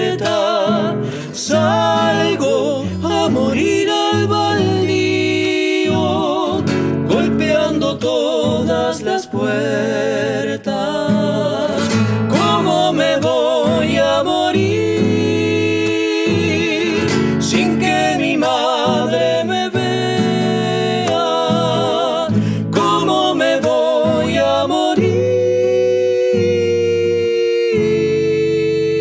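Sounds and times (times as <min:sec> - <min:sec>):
classical guitars plucking: 0:00.0 - 0:29.0
man singing with vibrato: 0:00.0 - 0:29.0.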